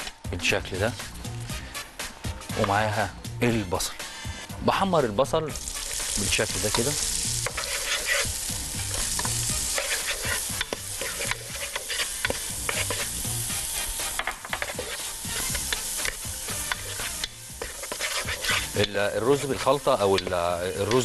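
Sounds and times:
onion sizzling in hot oil: 4.3 - 21.0
wooden spatula scraping pot: 6.6 - 21.0.

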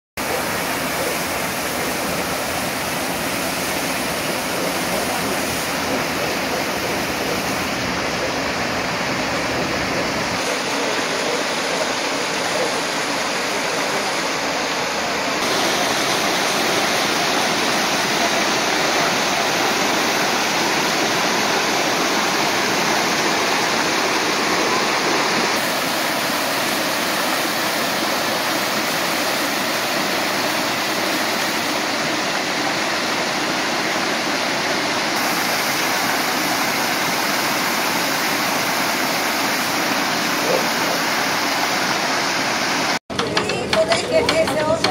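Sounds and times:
water pouring and splashing: 0.2 - 43.0.

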